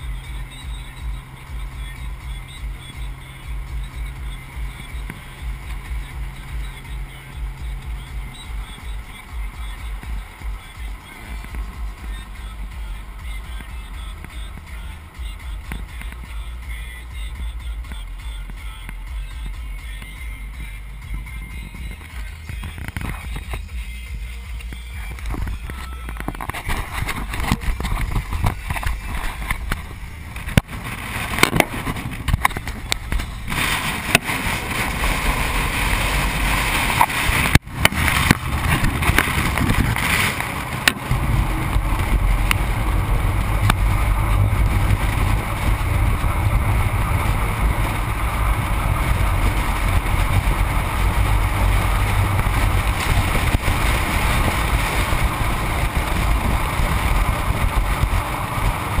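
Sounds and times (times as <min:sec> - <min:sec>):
tyre road noise: 0:00.0 - 0:59.0
wind rush: 0:26.2 - 0:59.0.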